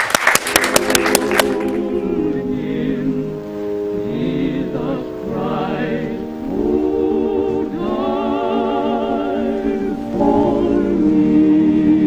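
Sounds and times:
studio applause: 0.0s - 1.9s
choir singing a hymn: 0.7s - 12.0s.

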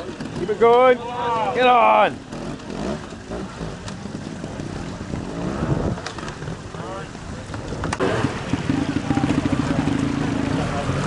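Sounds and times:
motorcycle engine revving: 0.0s - 11.0s
wind rumbling on microphone: 3.0s - 11.0s.

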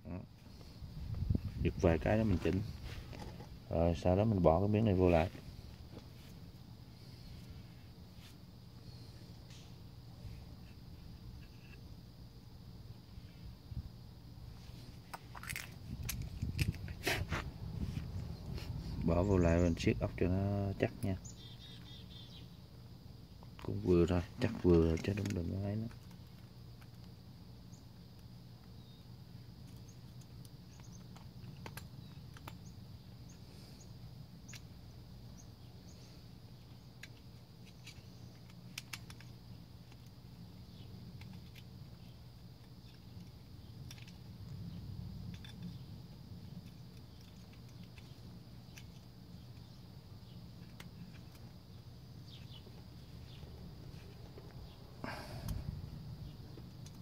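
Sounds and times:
low background hum: 0.0s - 57.0s
metal parts clicking and tapping: 42.6s - 44.2s.

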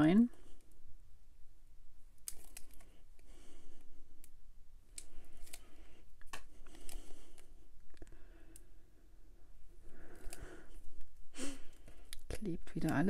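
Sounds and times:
small sharp clicks and crackles: 2.2s - 8.7s, 10.0s - 11.1s, 11.7s - 13.0s.

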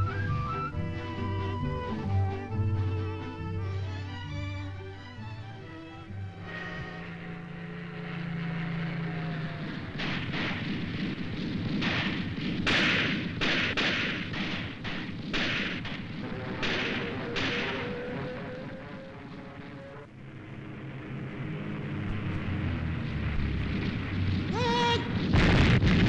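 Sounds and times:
steady low rumble: 0.0s - 26.0s
rifle shots: 9.5s - 19.7s.

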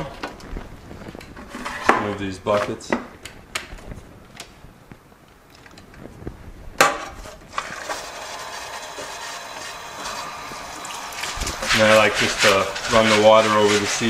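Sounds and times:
hose water running into sink: 7.5s - 14.0s.

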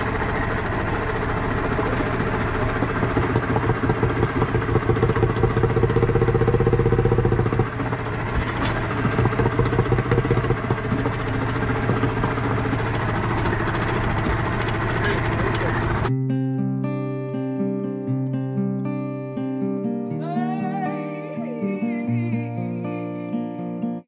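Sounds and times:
outboard motor running: 0.0s - 16.1s.

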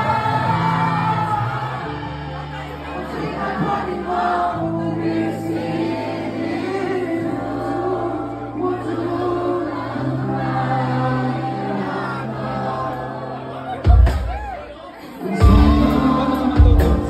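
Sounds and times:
many voices singing: 0.0s - 17.0s
bass notes: 15.4s - 17.0s.

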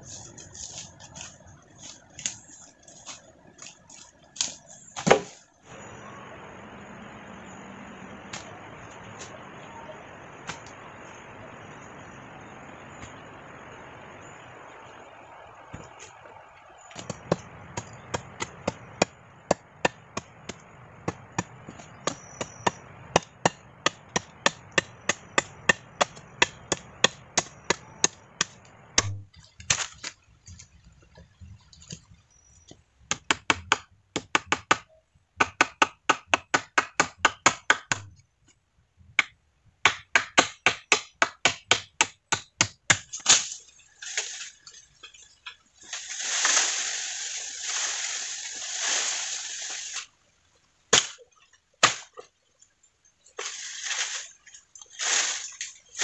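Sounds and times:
hand tool striking wood: 4.4s - 5.4s, 17.0s - 29.9s, 39.2s - 43.5s
steady rushing hiss: 5.6s - 29.0s, 43.8s - 50.6s.

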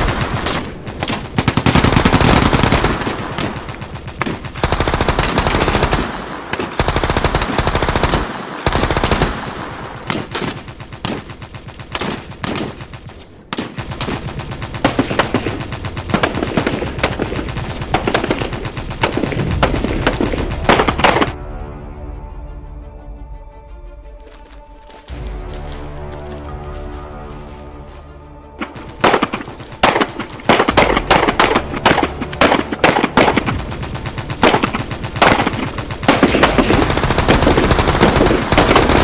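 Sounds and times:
machine-gun bursts: 0.0s - 6.1s, 13.8s - 21.4s, 28.6s - 39.0s
rifle shots: 0.0s - 21.4s, 28.6s - 39.0s
music: 19.5s - 39.0s.

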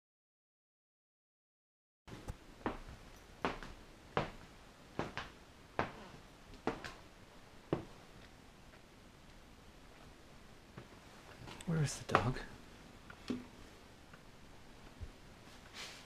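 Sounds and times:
footsteps on tile floor: 2.1s - 7.0s, 7.7s - 8.0s.

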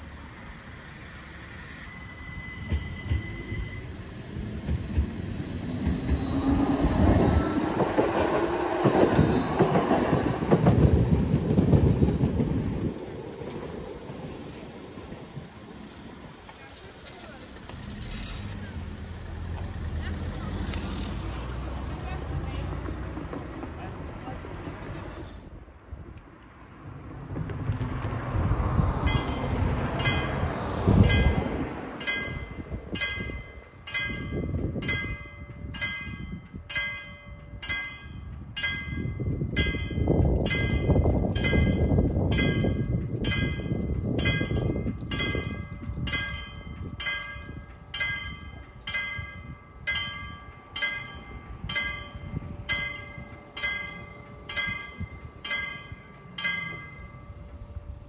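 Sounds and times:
level crossing warning bell ringing: 29.1s - 58.0s.

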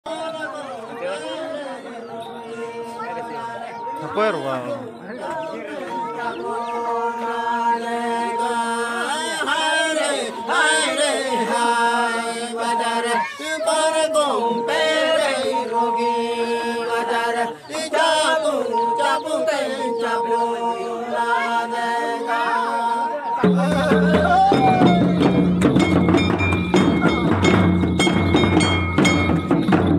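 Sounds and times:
men chanting together: 0.1s - 25.3s
held drone note: 14.0s - 29.8s.

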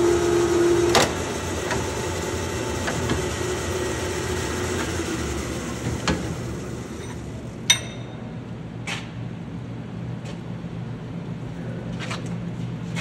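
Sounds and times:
power threader humming and cutting: 0.0s - 7.6s
metallic clink: 7.7s - 8.2s.

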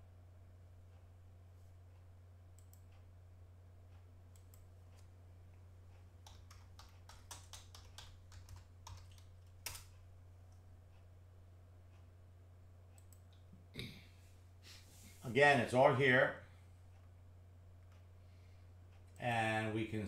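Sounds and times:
faint low hum: 0.0s - 20.0s
typing on computer keyboard: 6.2s - 10.0s.

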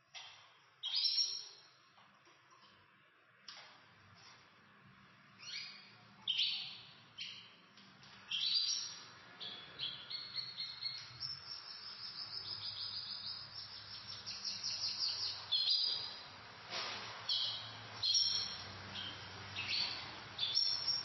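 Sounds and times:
canaries singing: 0.1s - 1.8s, 3.5s - 21.0s.

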